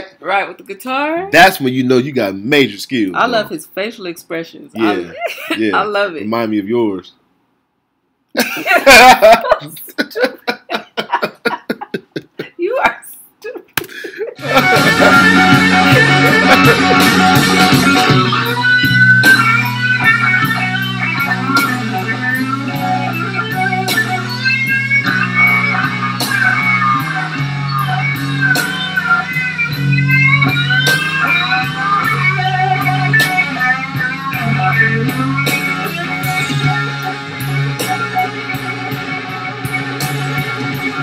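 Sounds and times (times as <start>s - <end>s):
bass: 1.1s - 3.4s, 4.8s - 6.9s, 14.4s - 41.0s
electric guitar soloing: 4.8s - 5.9s, 14.4s - 41.0s
drums: 13.8s - 41.0s.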